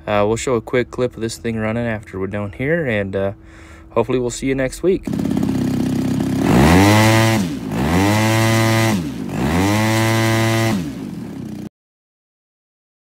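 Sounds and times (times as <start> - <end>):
two-stroke engine revving: 5.0 - 11.7.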